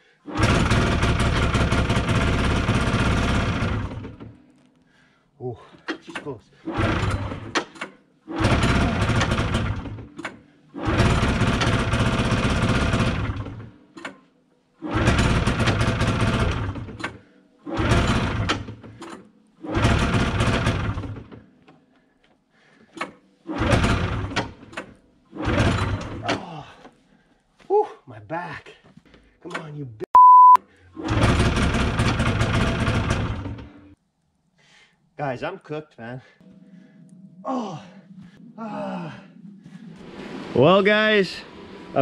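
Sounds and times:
pull-start cord: 0:00.3 - 0:04.4, 0:05.8 - 0:14.2, 0:14.8 - 0:21.8, 0:31.0 - 0:33.9
two-stroke engine starting and dying: 0:00.3 - 0:04.4, 0:06.6 - 0:13.8, 0:14.8 - 0:21.5, 0:23.5 - 0:26.3, 0:31.0 - 0:34.0.

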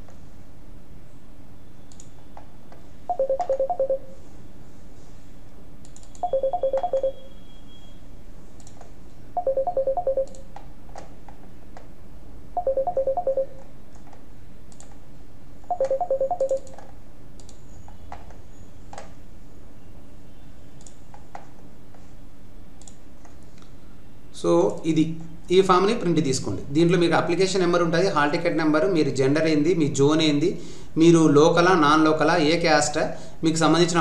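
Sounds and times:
soft clicks: 0:01.9 - 0:02.8, 0:05.8 - 0:07.0, 0:08.6 - 0:09.0, 0:13.9 - 0:15.0, 0:15.8 - 0:19.2, 0:20.8 - 0:22.0, 0:22.8 - 0:23.8
ringtone beeping pulses: 0:03.1 - 0:04.1, 0:06.2 - 0:07.9, 0:09.4 - 0:10.3, 0:12.6 - 0:13.6, 0:15.7 - 0:16.6.

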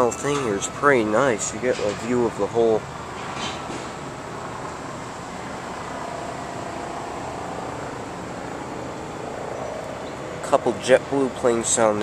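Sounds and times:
faint jet whine: 0:00.0 - 0:12.0.

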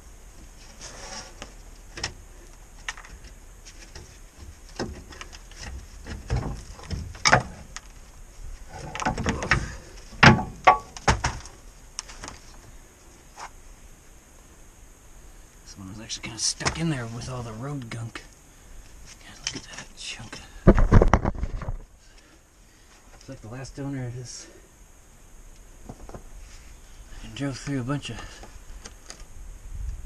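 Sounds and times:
tools knocking and clunking: 0:08.8 - 0:11.4.

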